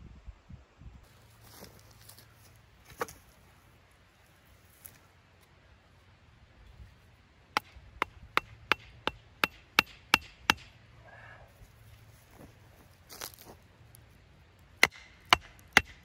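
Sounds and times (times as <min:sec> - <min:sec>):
hatchet knocking wooden stake: 0:07.6 - 0:10.7, 0:14.8 - 0:16.0.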